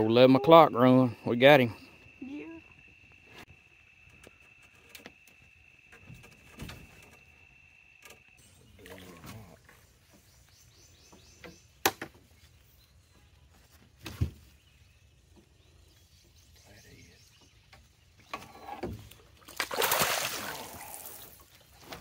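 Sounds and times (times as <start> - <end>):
fish thrashing water splashing: 19.4 - 21.4.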